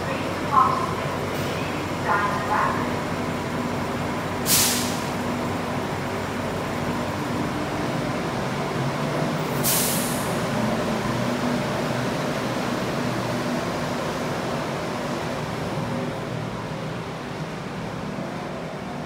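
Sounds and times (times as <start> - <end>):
train mechanical hum: 0.0 - 19.0
air release hisses: 4.5 - 5.1, 9.6 - 10.3.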